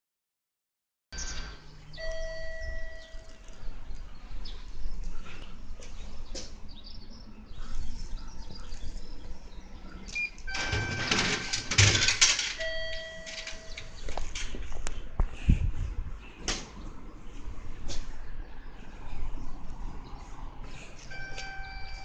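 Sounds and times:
single held tone: 0:02.0 - 0:03.4
electronic ringing chime: 0:02.0 - 0:03.5, 0:10.5 - 0:11.6, 0:12.6 - 0:14.0, 0:21.2 - 0:22.0.

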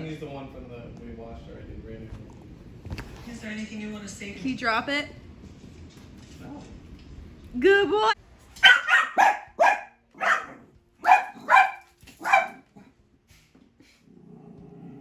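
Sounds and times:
dog barking: 0:08.6 - 0:12.9.

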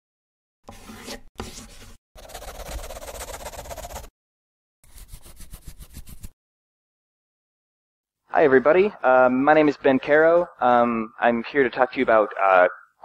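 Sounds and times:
scratchy scribbling: 0:00.7 - 0:04.1, 0:04.8 - 0:06.4.

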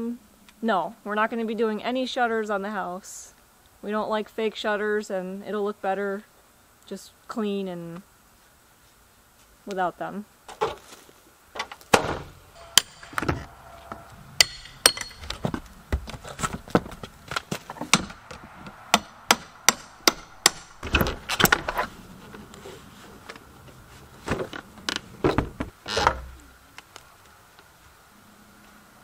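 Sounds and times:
hammer blows on wood: 0:12.6 - 0:15.6.

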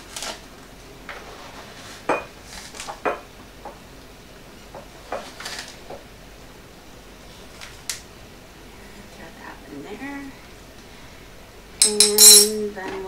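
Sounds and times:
metal spoon clinking on glass jars: 0:11.8 - 0:12.6.

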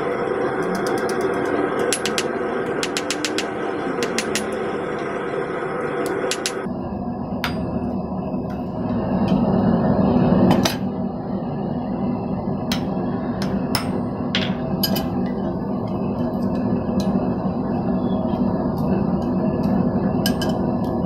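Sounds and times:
hammer striking steel on anvil: 0:00.8 - 0:04.6, 0:06.0 - 0:06.7, 0:12.7 - 0:15.1
low rumble: 0:03.4 - 0:21.0.

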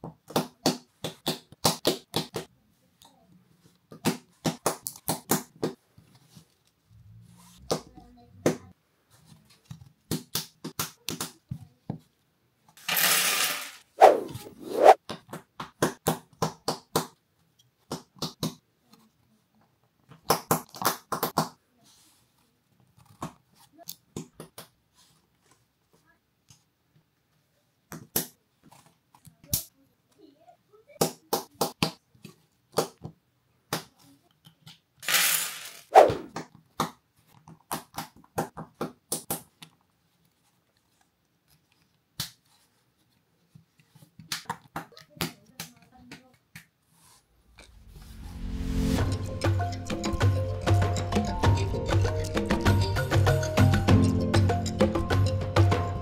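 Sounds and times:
plastic bricks clicking and rattling: 0:12.8 - 0:13.8.

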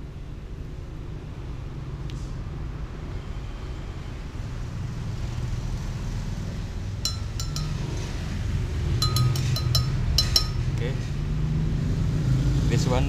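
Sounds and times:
metal spoon clinking on glass: 0:07.1 - 0:08.2, 0:09.0 - 0:10.8
low steady rumble: 0:07.1 - 0:10.9.

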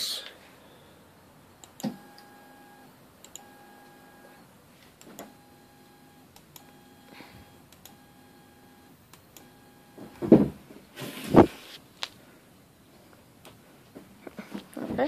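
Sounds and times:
stepper motor whine: 0:05.2 - 0:10.3.

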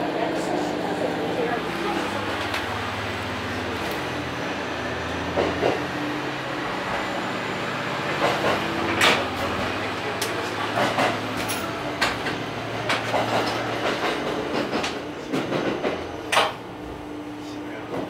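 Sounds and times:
railcar engine hum: 0:00.0 - 0:18.0
wheels clacking over rail joints: 0:08.0 - 0:16.7.

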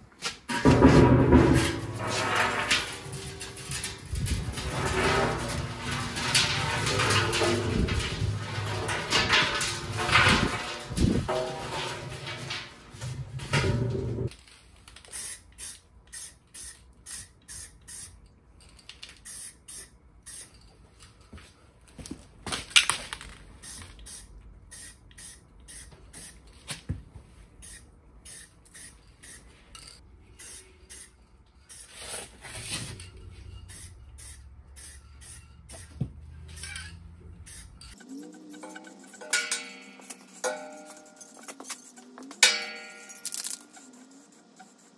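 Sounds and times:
spray paint can hissing: 0:15.1 - 0:18.2, 0:19.2 - 0:20.6, 0:23.6 - 0:26.4, 0:27.6 - 0:29.5, 0:30.4 - 0:31.1, 0:31.7 - 0:32.2, 0:33.7 - 0:36.0, 0:37.4 - 0:38.0, 0:43.2 - 0:44.9.

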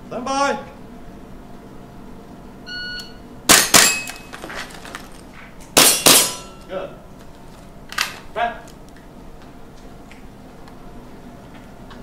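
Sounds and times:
shot timer beep: 0:02.7 - 0:03.2
airsoft pistol shots: 0:03.5 - 0:04.1, 0:05.8 - 0:06.5
airsoft rifle shots: 0:03.5 - 0:04.1, 0:05.8 - 0:06.5
metallic clangs: 0:03.5 - 0:04.7, 0:05.8 - 0:06.7.

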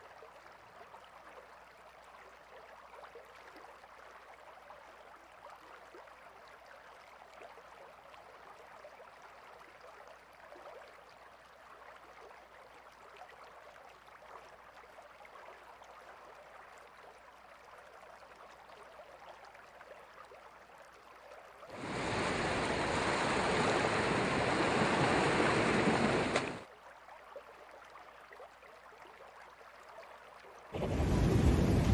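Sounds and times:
faint crackling hissing water: 0:21.6 - 0:26.7
sea water rushing and small waves: 0:21.7 - 0:26.7, 0:30.7 - 0:31.9.

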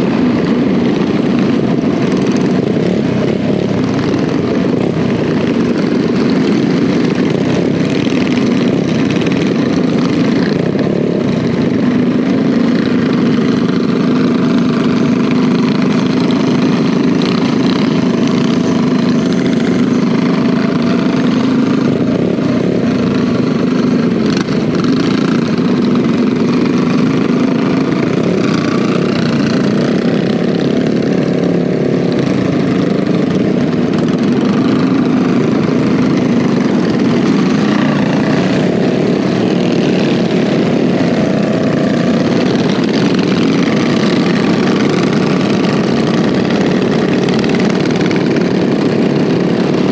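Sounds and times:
minibike engine running: 0:00.0 - 0:49.9
other minibike engines: 0:00.0 - 0:49.9.

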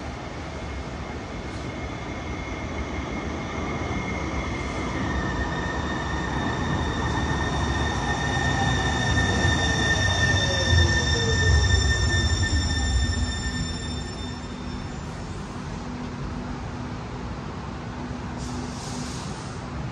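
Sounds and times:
low rumble of train cars: 0:00.0 - 0:19.9
train high-pitched tones: 0:01.3 - 0:15.7
train whine falling in pitch: 0:01.7 - 0:15.4.

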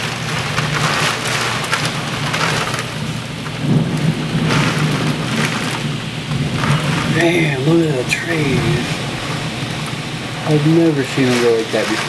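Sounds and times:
heavy rain: 0:00.0 - 0:12.0
high wind: 0:00.0 - 0:12.0.

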